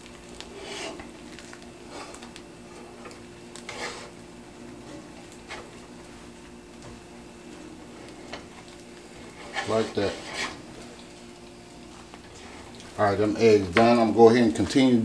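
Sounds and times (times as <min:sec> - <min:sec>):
low steady hum: 0:00.0 - 0:15.0
spatula scraping frying pan: 0:00.4 - 0:01.1, 0:03.0 - 0:04.2, 0:09.2 - 0:10.7.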